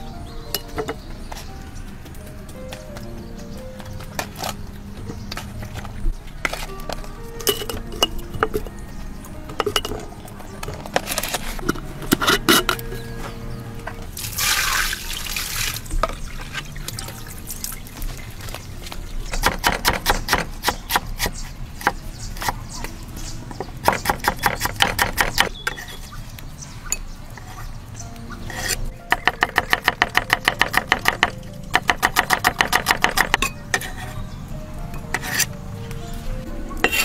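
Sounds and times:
water splashing and pouring: 0:14.2 - 0:19.2.

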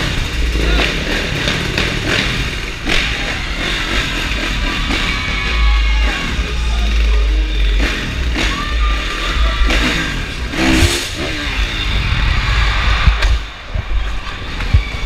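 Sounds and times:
dirt bike engine revving: 0:00.0 - 0:15.0.

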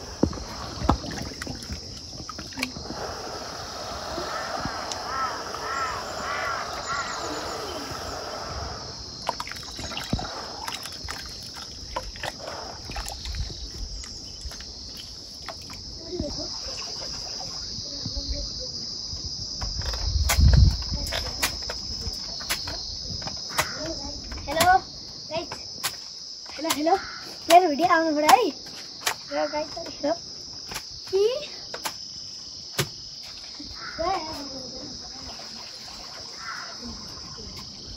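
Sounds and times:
insects chirring: 0:00.0 - 0:37.9
hands sloshing clay in water: 0:00.3 - 0:02.8, 0:09.2 - 0:15.8.

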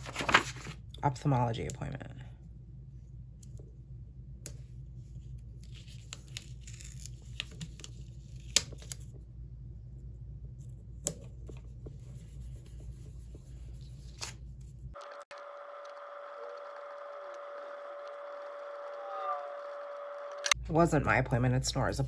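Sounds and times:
paper rustling: 0:00.0 - 0:00.8, 0:13.5 - 0:15.3.

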